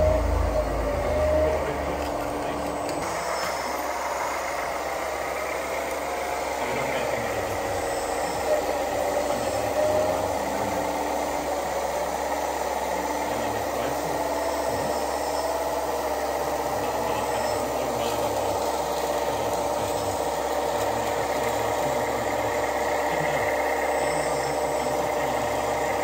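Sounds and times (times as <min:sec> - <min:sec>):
small motors and gears whirring: 0:00.0 - 0:26.0.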